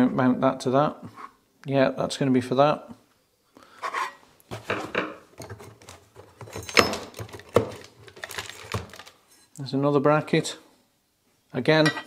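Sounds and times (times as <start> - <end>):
metal brackets clinking: 6.5 - 7.2.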